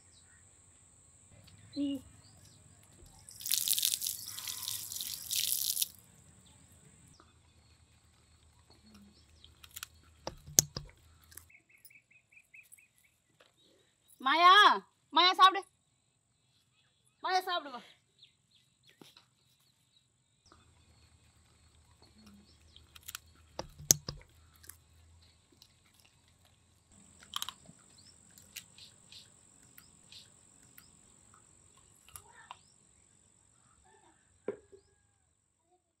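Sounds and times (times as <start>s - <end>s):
birds chirping: 1.3s - 17.5s, 26.8s - 33.7s
sharp click: 9.6s - 11.4s.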